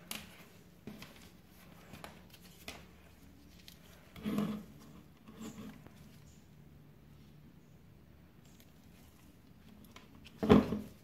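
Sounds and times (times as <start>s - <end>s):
hands moving wires and plastic: 0.0s - 6.4s.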